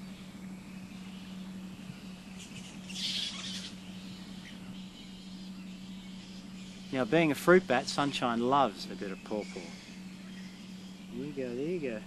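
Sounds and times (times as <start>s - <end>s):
steady low hum: 0.0s - 12.0s
fruit bat screeching: 2.4s - 3.8s, 8.0s - 11.9s.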